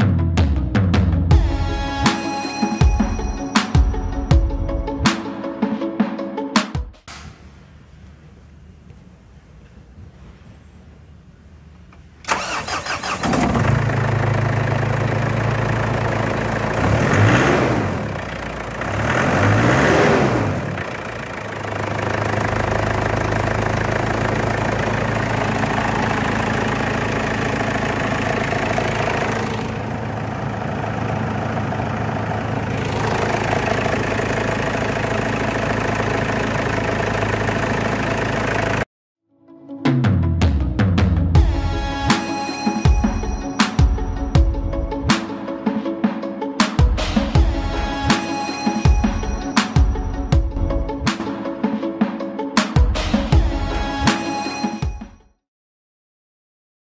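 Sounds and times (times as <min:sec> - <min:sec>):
engine idling: 0:07.1 - 0:38.9
diesel engine starting and revving: 0:11.9 - 0:38.9.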